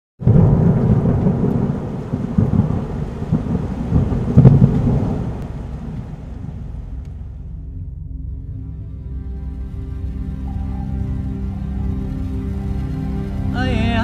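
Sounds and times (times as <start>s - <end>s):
thunder rumbling: 0.2s - 8.4s.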